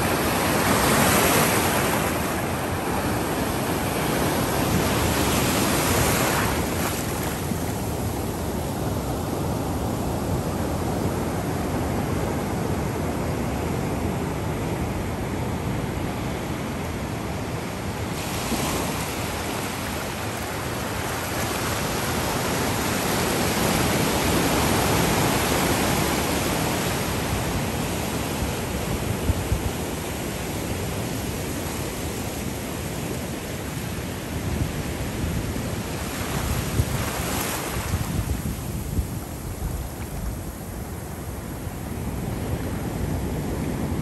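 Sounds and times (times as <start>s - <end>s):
ocean surf breaking: 0.0s - 11.7s, 17.6s - 34.4s, 35.0s - 44.0s.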